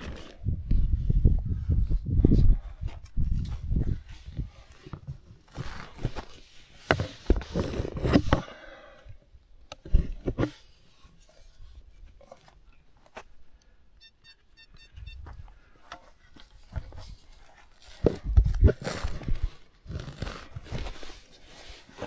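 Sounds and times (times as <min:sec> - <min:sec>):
dirt crunching and scraping: 0:00.0 - 0:08.8, 0:09.7 - 0:13.7, 0:14.4 - 0:22.0
high electronic beeps: 0:14.0 - 0:15.4.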